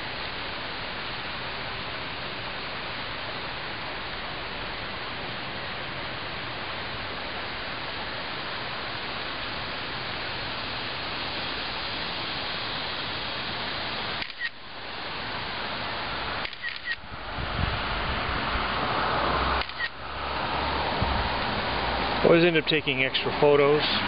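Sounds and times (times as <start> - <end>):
outdoor background hiss: 0.0 - 24.0
camera beep and shutter click: 14.2 - 14.6, 16.4 - 17.0, 19.6 - 19.9.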